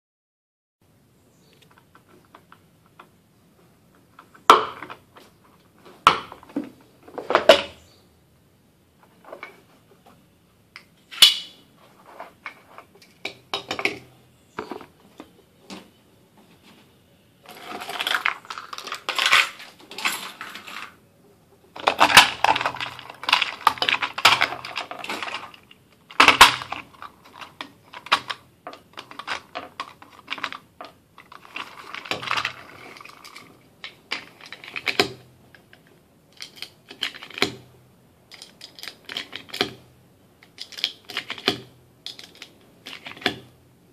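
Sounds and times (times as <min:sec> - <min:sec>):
metal and plastic clicks: 0:38.3 - 0:39.8, 0:40.4 - 0:43.5.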